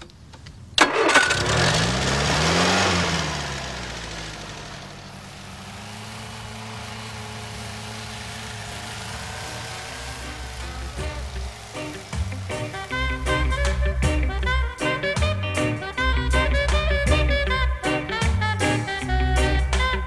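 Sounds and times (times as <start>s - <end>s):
engine starting and idling: 0.4s - 15.1s.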